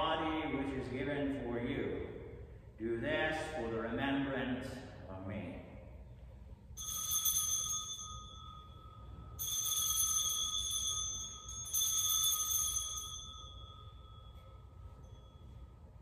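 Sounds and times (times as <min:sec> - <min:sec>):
altar bells ringing: 0:06.7 - 0:16.0.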